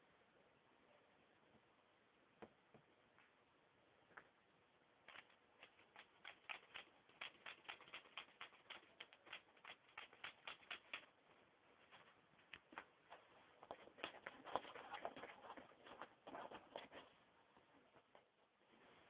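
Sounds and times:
puppy gnawing on a toy: 5.1 - 11.2, 11.9 - 17.2.

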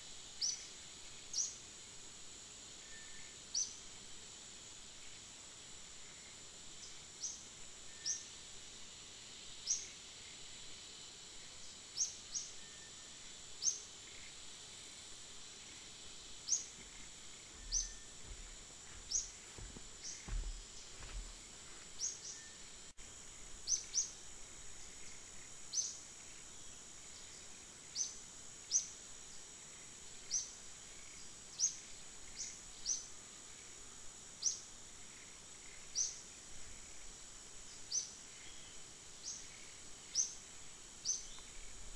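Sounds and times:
high-pitched insect drone: 0.0 - 41.9.

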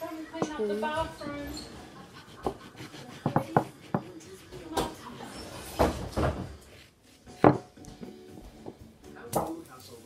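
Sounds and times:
knife slicing lemon: 2.0 - 5.2.

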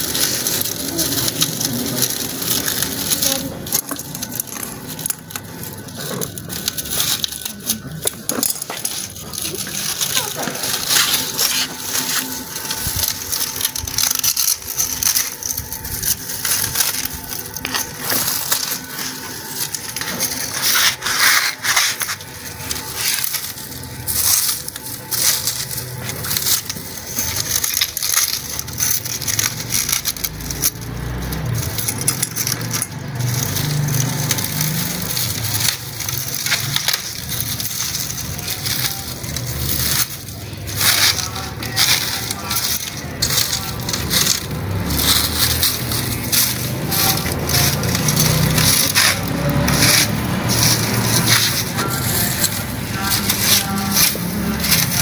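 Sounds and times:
dry fibres crackling and tearing: 0.0 - 55.0.

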